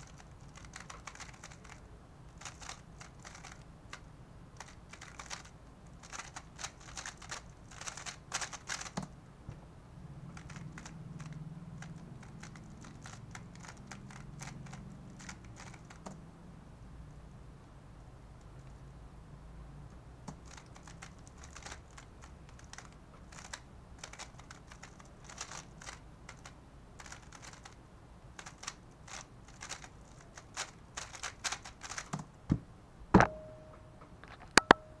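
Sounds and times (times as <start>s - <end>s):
plastic clicking of cube turning: 0.0s - 9.2s, 10.4s - 16.2s, 20.3s - 27.8s, 28.4s - 32.3s.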